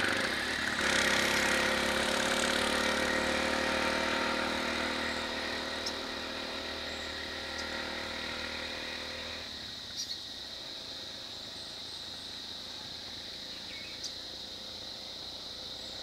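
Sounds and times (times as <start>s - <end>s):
high insect buzz: 0.0s - 16.0s
vehicle engines idling: 0.0s - 16.0s.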